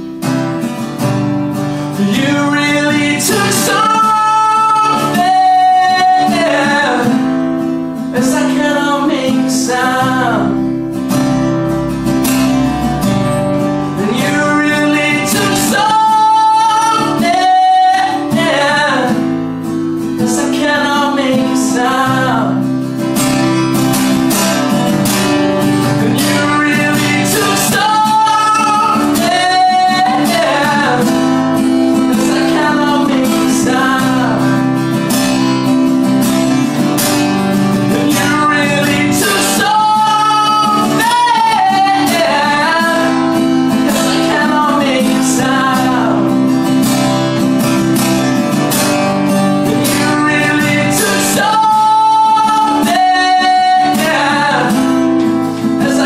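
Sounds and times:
acoustic guitar strumming: 0.0s - 56.0s
person singing: 1.8s - 36.8s, 37.6s - 48.4s, 49.0s - 56.0s.

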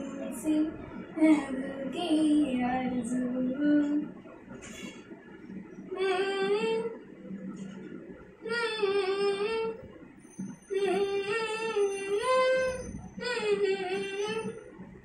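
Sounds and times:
girl singing unaccompanied: 0.0s - 4.1s, 6.0s - 7.0s, 8.4s - 9.8s, 10.7s - 14.7s.

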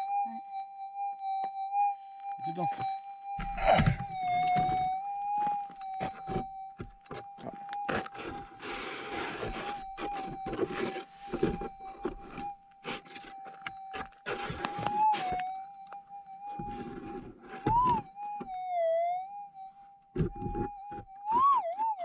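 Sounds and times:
metal detector threshold tone: 0.0s - 7.9s.

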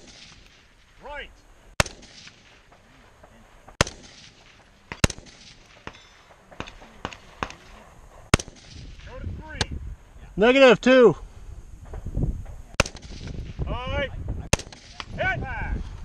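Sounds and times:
rifle shots: 0.0s - 0.9s, 1.8s - 9.1s, 12.7s - 13.6s, 14.5s - 15.2s
faint gunshot cracks: 1.8s - 2.6s, 3.7s - 7.7s, 8.3s - 9.7s, 12.7s - 13.5s, 14.5s - 15.2s.

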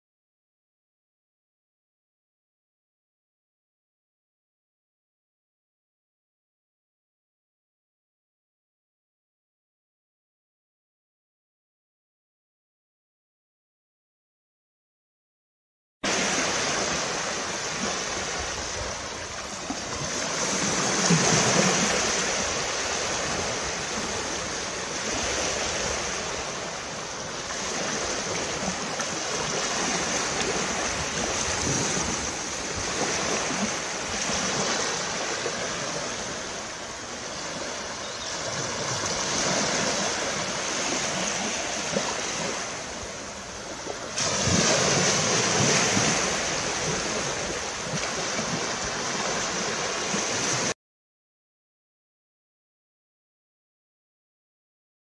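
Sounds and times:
waves breaking on a beach: 16.0s - 50.8s.

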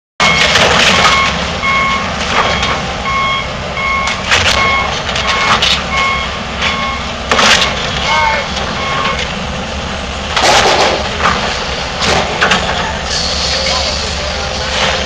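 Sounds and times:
debris crashing and breaking: 0.2s - 1.4s, 10.3s - 12.8s
backup alarm beeping: 0.2s - 7.1s, 8.7s - 9.3s
diesel machine rumble: 0.2s - 15.0s.

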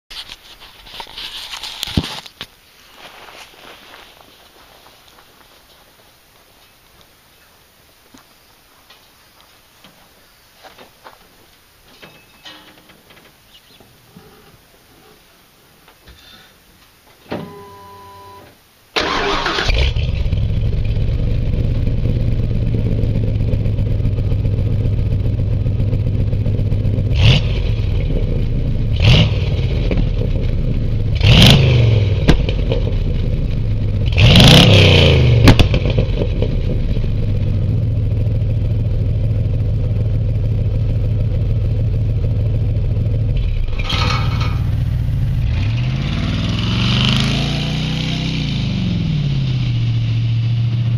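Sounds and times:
engine starting: 19.0s - 20.2s, 43.6s - 44.7s
loud engine idling and revving: 19.7s - 50.9s.

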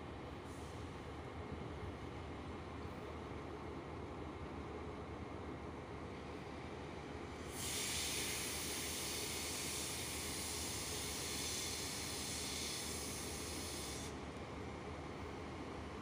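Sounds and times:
diesel engine low rumble: 0.0s - 16.0s
compressed air hissing: 7.5s - 14.2s.

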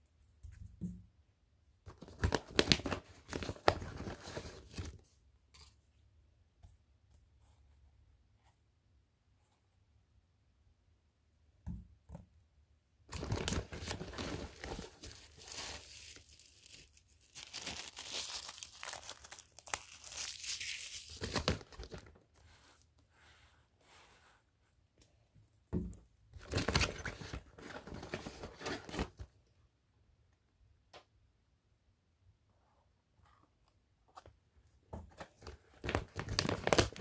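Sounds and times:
packaging rustling and crinkling: 13.1s - 22.2s, 35.4s - 37.0s.

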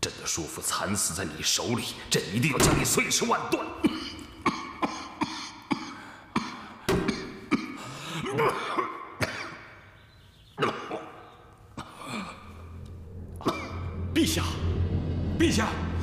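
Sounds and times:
man coughing violently: 3.5s - 9.8s, 10.6s - 12.7s, 13.4s - 14.0s.

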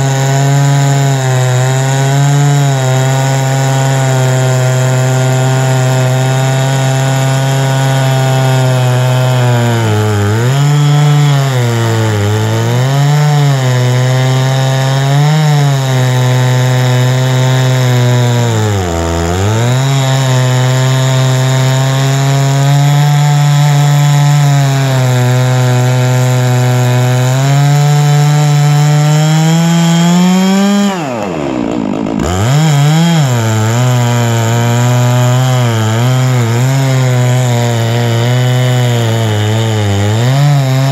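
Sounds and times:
chainsaw cutting log: 0.0s - 40.9s.

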